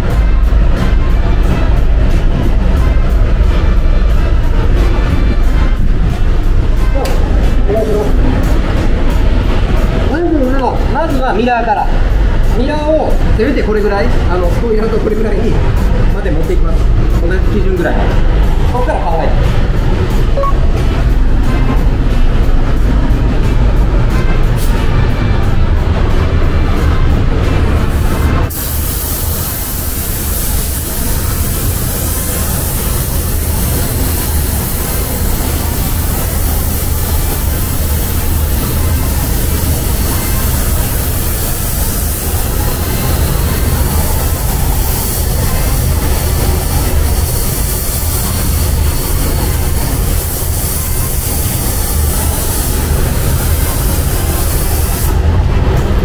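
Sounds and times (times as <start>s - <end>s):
booth airflow rumble: 0.0s - 56.0s
deep steady hum: 0.0s - 56.0s
paint spray gun hissing: 28.5s - 55.2s.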